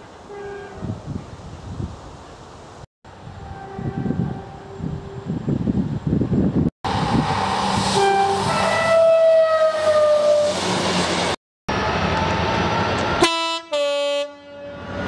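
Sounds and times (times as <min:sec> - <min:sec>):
train engine and wheel noise: 0:00.0 - 0:15.0
locomotive loud two-tone horn: 0:00.3 - 0:00.9, 0:03.4 - 0:04.8, 0:07.9 - 0:10.6, 0:13.2 - 0:15.0
train two-tone horn: 0:00.3 - 0:00.9, 0:03.4 - 0:04.8, 0:07.9 - 0:10.6, 0:13.2 - 0:15.0.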